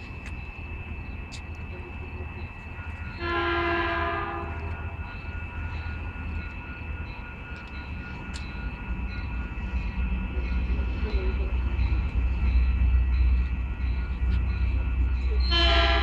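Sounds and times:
train horn blast: 0:03.2 - 0:04.6, 0:15.5 - 0:16.0.

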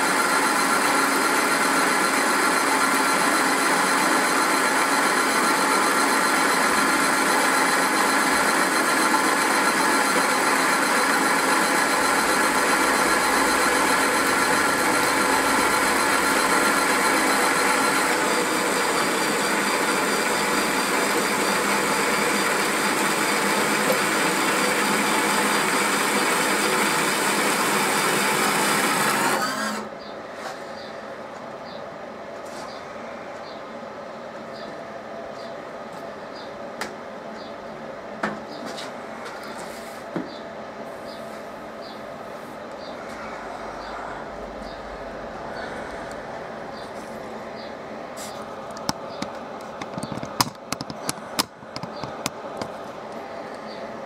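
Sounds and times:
drill motor whine: 0:00.0 - 0:30.0
grain rattling through mill: 0:06.7 - 0:29.7.

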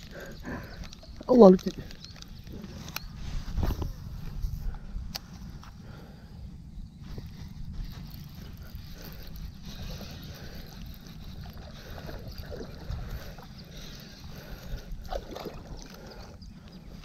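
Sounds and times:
wind rumble: 0:00.0 - 0:17.0
fishing reel cranking: 0:07.9 - 0:14.8.

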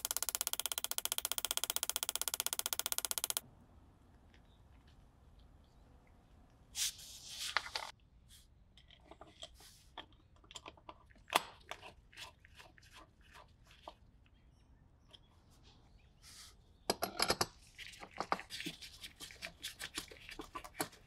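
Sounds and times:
screwdriver clicking and scraping: 0:00.0 - 0:03.4.

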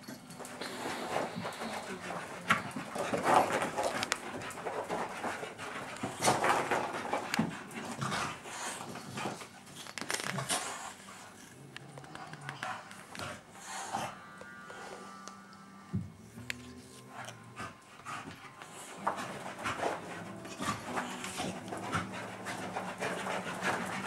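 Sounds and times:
dog panting: 0:00.4 - 0:09.7, 0:12.2 - 0:14.2, 0:17.1 - 0:24.0.

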